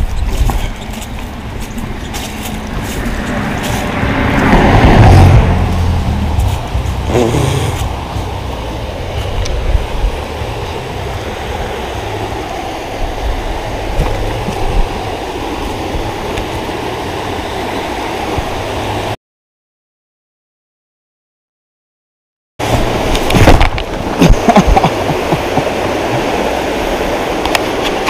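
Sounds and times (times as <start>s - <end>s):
river water rushing over rocks: 0.0s - 19.2s, 22.6s - 28.0s
low rumble: 1.3s - 17.2s.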